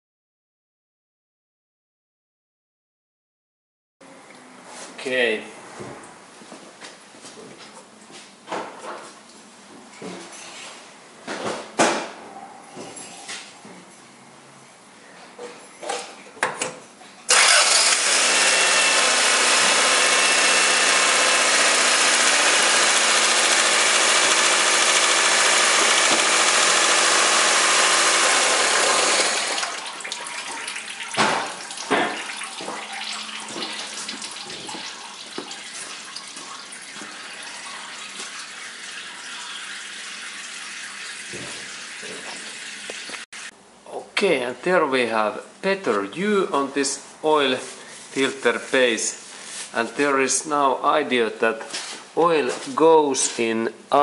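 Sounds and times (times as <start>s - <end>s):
car engine running: 17.3s - 29.6s.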